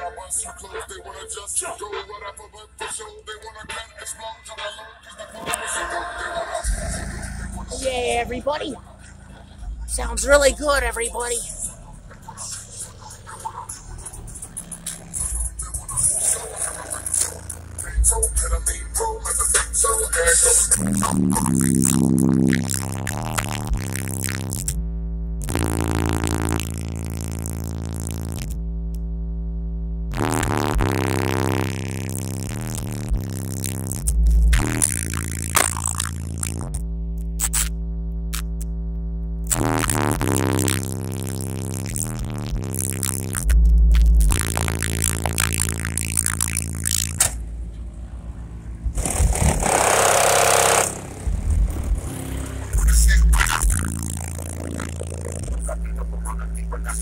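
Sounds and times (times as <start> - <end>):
bass-heavy music on car subwoofers: 0.0 - 57.0
harsh scraping noise: 48.9 - 55.8.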